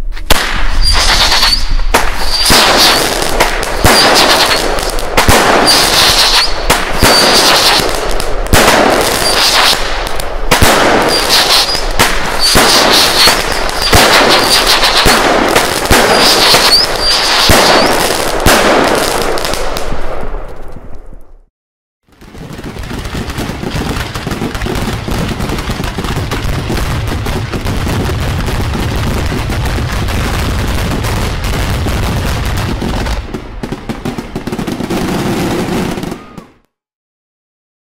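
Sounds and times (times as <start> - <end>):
firework bang: 0.2 - 20.0, 22.1 - 36.5
crackling firework sparks: 0.2 - 21.0, 22.1 - 36.4
firework whistle: 0.7 - 3.1, 3.7 - 4.6, 5.6 - 7.9, 9.2 - 9.8, 11.0 - 15.2, 15.9 - 18.1, 36.0 - 36.6.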